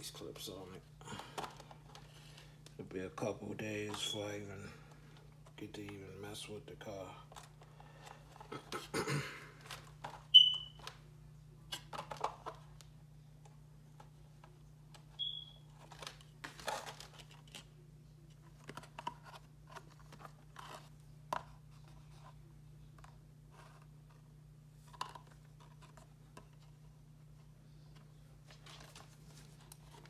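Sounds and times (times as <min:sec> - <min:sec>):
plastic packaging rustling and clicking: 0:09.6 - 0:11.0, 0:11.7 - 0:12.9, 0:14.0 - 0:22.3, 0:24.8 - 0:26.8, 0:27.9 - 0:30.0.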